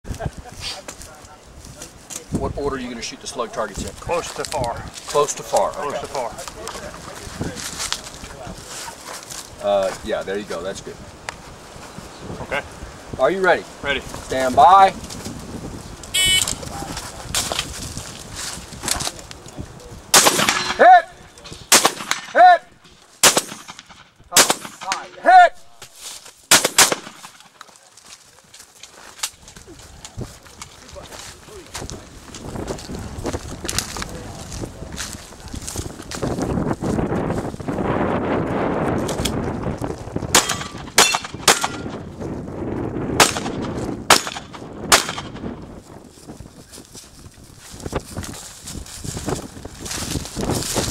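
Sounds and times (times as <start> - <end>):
shotgun shots: 20.1 - 21.0, 21.7 - 22.5, 23.2 - 25.2, 26.5 - 27.5, 40.3 - 42.0, 43.2 - 45.4.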